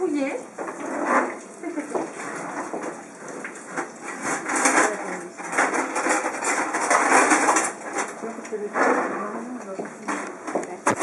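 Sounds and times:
kitchen equipment clattering: 3.6 - 11.0.

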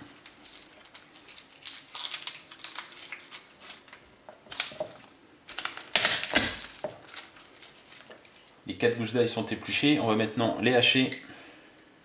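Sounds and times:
garlic skins crinkling: 0.0 - 8.5.

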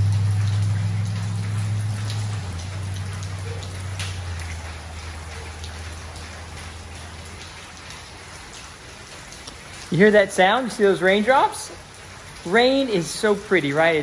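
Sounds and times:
low hum: 0.0 - 7.2
rainwater dripping indoors: 0.0 - 14.0.

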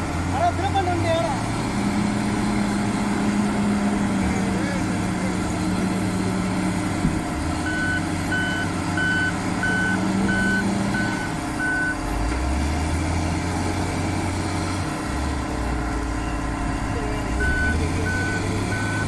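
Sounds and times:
diesel engine running: 0.0 - 19.0
reverse alarm beeping: 7.6 - 12.0, 16.1 - 19.0.

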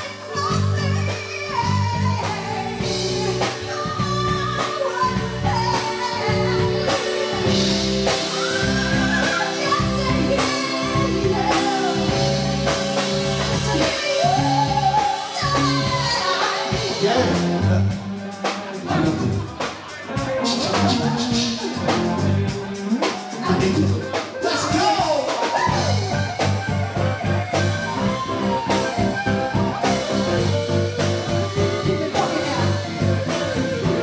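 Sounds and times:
woman singing: 0.0 - 17.4, 29.8 - 34.0
live rock band playing: 0.0 - 34.0.

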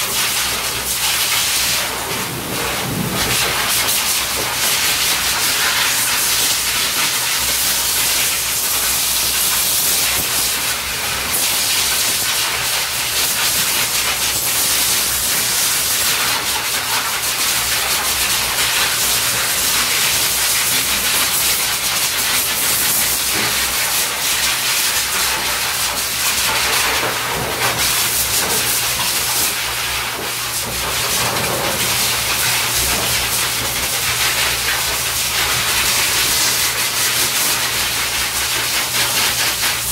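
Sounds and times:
pet dryer blowing air: 2.1 - 3.9.

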